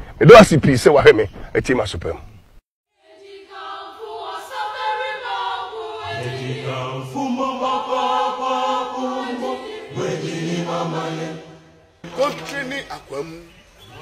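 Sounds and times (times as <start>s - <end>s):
choir singing held notes: 3.0s - 12.8s.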